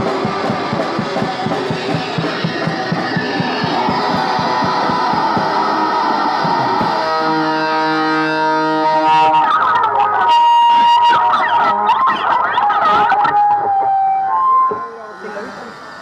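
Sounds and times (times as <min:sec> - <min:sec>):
drum kit playing: 0:00.0 - 0:07.3
amp feedback whine: 0:00.0 - 0:16.0
electric guitar: 0:00.0 - 0:16.0.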